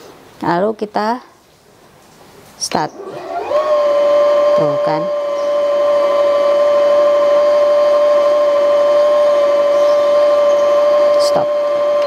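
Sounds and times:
sewing machine motor whine: 2.8 - 12.0.

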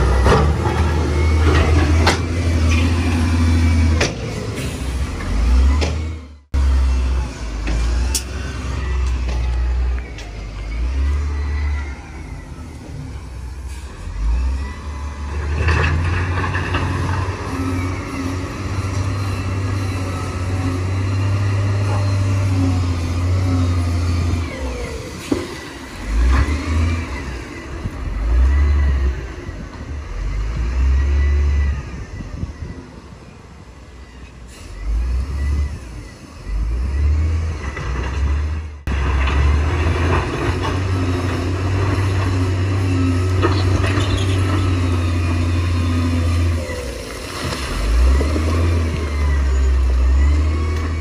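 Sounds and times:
machinery clanks and knocks: 0.0 - 3.2, 3.9 - 6.1
heavy diesel engine revving: 0.0 - 32.2, 34.5 - 51.0.

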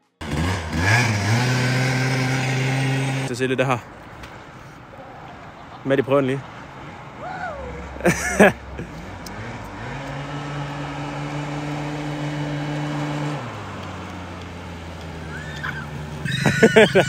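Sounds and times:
scooter engine revving: 0.2 - 3.5, 7.6 - 17.0.

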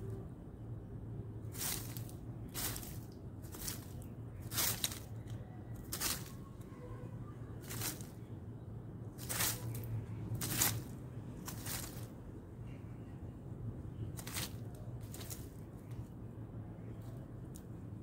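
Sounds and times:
faint low hum: 0.0 - 18.0
dry leaves rustling: 1.4 - 6.7, 7.5 - 8.2, 9.1 - 12.2, 14.0 - 16.0.

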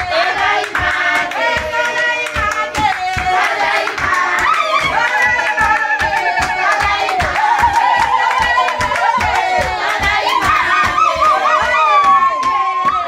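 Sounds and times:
group of voices singing: 0.0 - 13.0
steady beat: 0.0 - 13.0.

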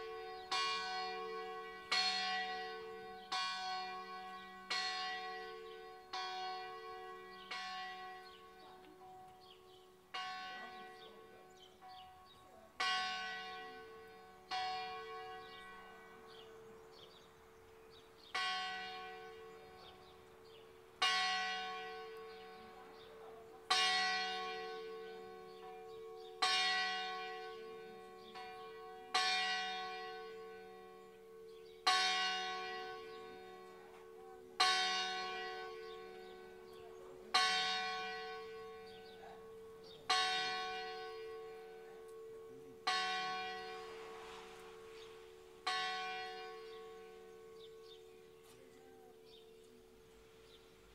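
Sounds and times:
church bells pealing: 0.0 - 50.9.

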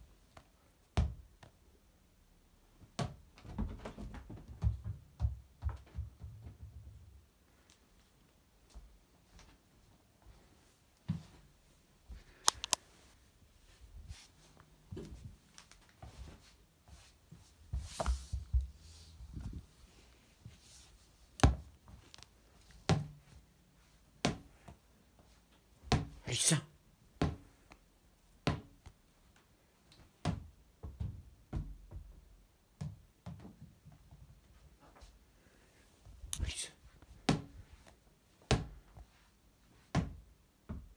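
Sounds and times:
ball bouncing on a floor: 1.0 - 1.5, 2.9 - 6.6, 28.4 - 28.8, 30.2 - 32.2
sharp clicks: 12.4 - 12.8.

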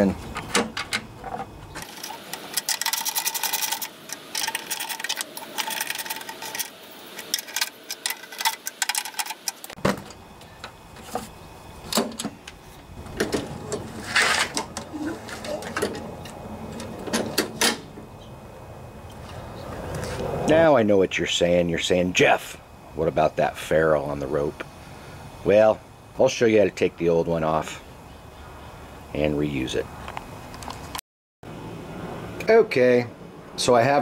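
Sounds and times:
knocks and handling clatter: 0.2 - 18.2.

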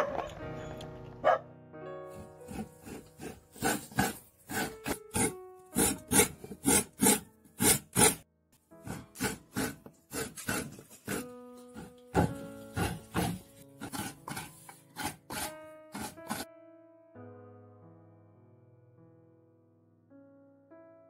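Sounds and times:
soft background music: 0.0 - 21.0
coconut being grated by hand: 2.2 - 8.2, 8.8 - 16.5.

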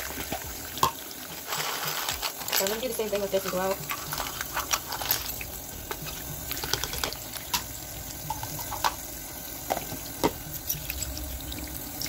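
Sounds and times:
water running from tap: 0.0 - 12.0
small items clicking and knocking: 0.8 - 7.7.

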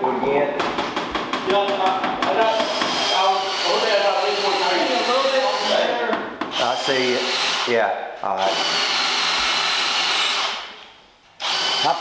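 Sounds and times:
power drill whirring: 2.6 - 7.7, 8.4 - 10.8, 11.4 - 12.0.

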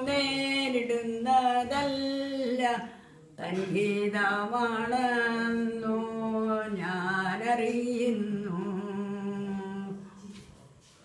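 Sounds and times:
woman singing unaccompanied: 0.0 - 10.4.

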